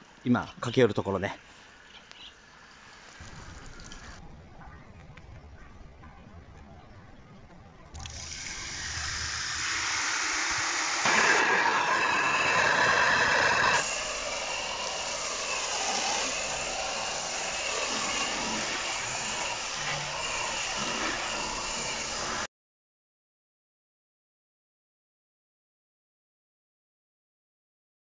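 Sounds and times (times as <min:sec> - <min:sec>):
foam lance hissing spray: 0:08.0 - 0:22.5.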